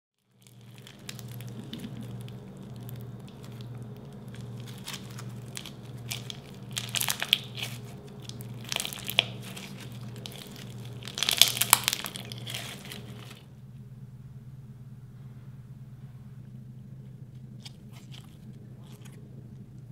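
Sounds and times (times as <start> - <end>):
crunchy bead slime being squeezed: 0.3 - 13.4.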